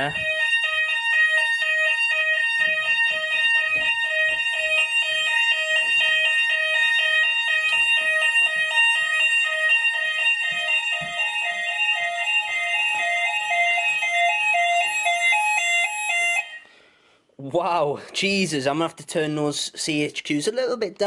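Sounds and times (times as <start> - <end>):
fire alarm steady tone: 0.0 - 16.8
fire alarm two-tone warble: 0.0 - 16.8.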